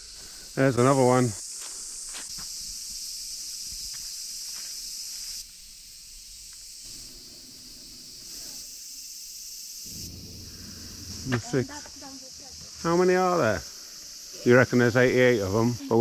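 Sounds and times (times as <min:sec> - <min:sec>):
high-pitched insect drone: 0:00.0 - 0:16.0
low rumble: 0:09.9 - 0:12.5.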